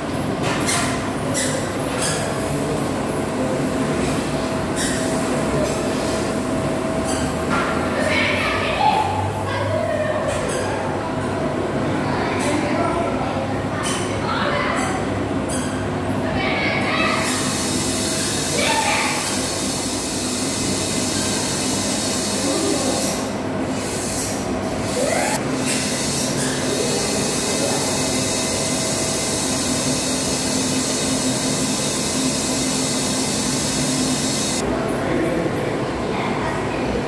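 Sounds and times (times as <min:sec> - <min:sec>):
machine rushing hiss: 0:17.2 - 0:34.6.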